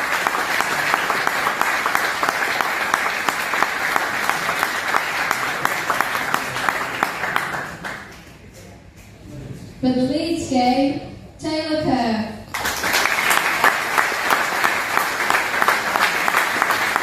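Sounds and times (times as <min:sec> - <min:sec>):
audience applauding: 0:00.0 - 0:08.4, 0:12.5 - 0:17.0.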